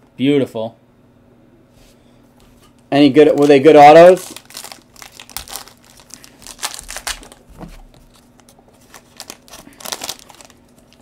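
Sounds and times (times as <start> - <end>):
foil wrapper crinkling and tearing: 3.3 - 11.0.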